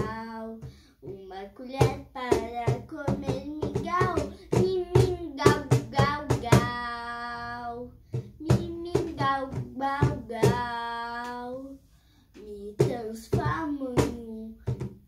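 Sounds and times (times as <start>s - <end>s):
child singing: 0.0s - 14.9s
hand slapping cajon: 1.6s - 7.0s.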